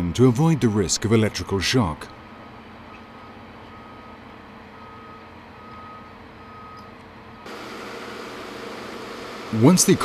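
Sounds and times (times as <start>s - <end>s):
low machinery hum: 2.2s - 10.0s
reversing alarm beeping: 3.2s - 10.0s
steady hiss of site noise: 7.5s - 10.0s.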